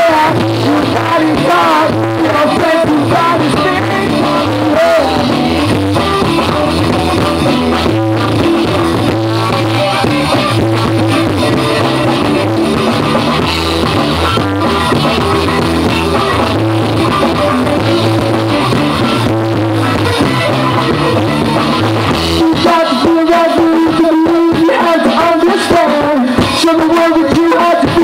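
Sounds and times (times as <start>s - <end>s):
funk rock band playing: 0.0s - 28.0s
steady bass line: 0.0s - 28.0s.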